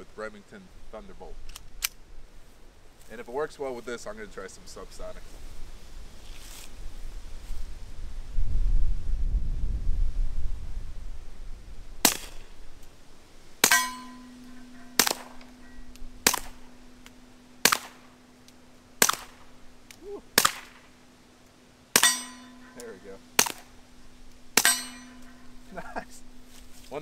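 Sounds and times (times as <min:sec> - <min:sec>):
suppressed pistol shots: 0:13.6 - 0:15.6, 0:16.2 - 0:18.3, 0:19.0 - 0:21.0, 0:22.0 - 0:23.8
metallic ring of steel target: 0:13.6 - 0:19.7, 0:22.0 - 0:26.4.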